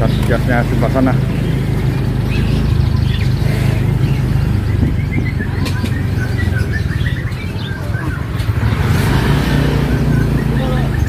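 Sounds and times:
low engine hum: 0.0s - 11.0s
songbirds chirping and singing: 0.0s - 11.0s.

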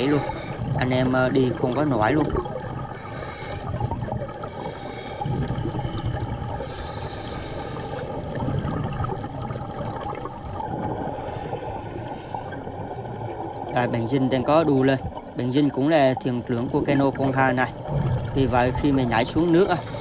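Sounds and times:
diver's exhaled air bubbling: 0.0s - 13.7s.

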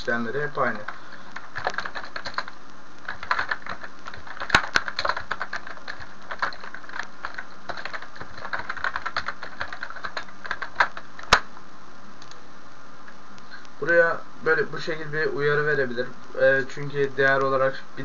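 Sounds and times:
typing on keyboard: 0.6s - 11.4s.

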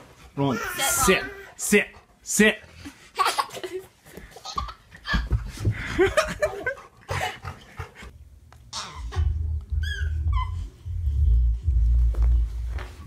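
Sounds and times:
low rumble: 9.2s - 13.0s
scuffling: 11.4s - 13.0s.

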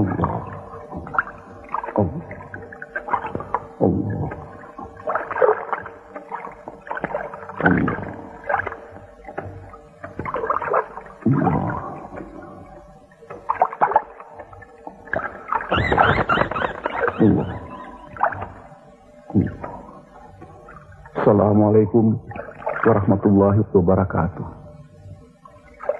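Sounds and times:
faint steady drone: 0.0s - 25.9s
eerie wailing tones: 15.2s - 18.6s.

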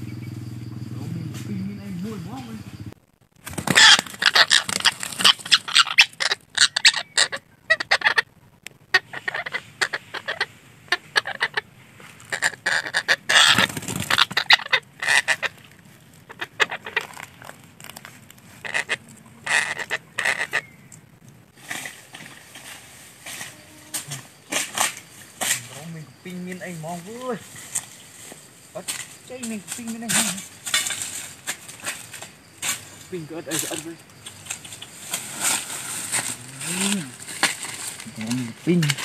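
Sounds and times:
parakeets squawking: 3.7s - 8.3s, 8.9s - 11.7s, 12.3s - 15.6s, 16.2s - 17.2s, 18.6s - 20.8s.

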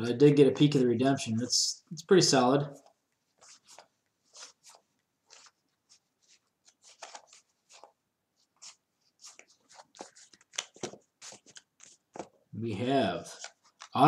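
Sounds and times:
cards sliding swishes: 3.3s - 12.4s.

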